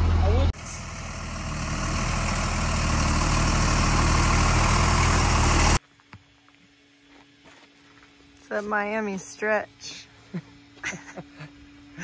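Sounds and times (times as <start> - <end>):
truck engine passing slowly: 0.0 - 5.8.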